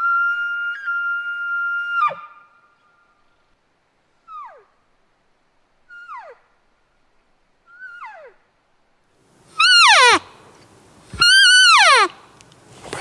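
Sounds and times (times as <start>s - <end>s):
elk call whistles: 0.0s - 3.1s, 5.9s - 6.4s, 7.6s - 8.4s, 9.6s - 10.3s, 11.2s - 12.2s.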